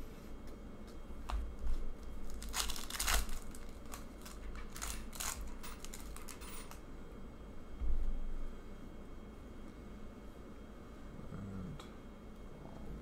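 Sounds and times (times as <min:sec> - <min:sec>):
foil wrapper tearing and crinkling: 0:02.2 - 0:06.8.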